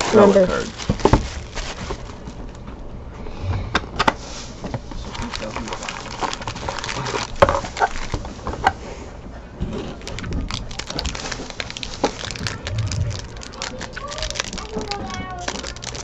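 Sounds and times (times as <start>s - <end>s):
foil wrapper crinkling: 0.0s - 2.4s, 5.0s - 8.5s, 9.9s - 16.0s.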